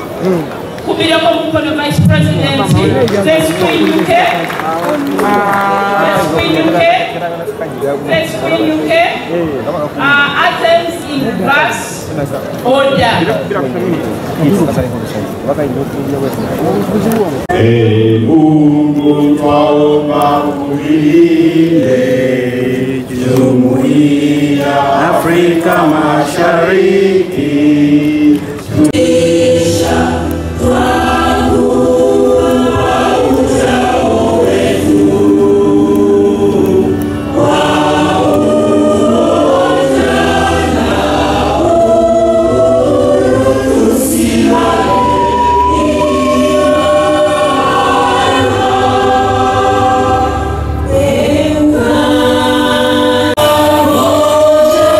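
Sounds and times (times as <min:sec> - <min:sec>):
choir singing in harmony: 0:17.5 - 0:54.9.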